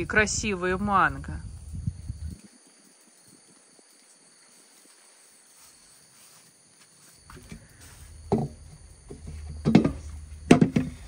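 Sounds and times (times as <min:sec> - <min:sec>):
insect buzzing: 0:01.4 - 0:11.0
dull thumps: 0:07.3 - 0:11.0.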